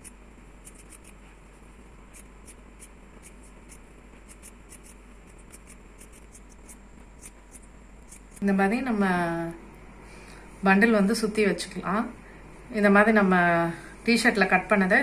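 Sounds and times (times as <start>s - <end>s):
scissors snipping fabric: 0.0s - 1.2s, 2.1s - 8.5s.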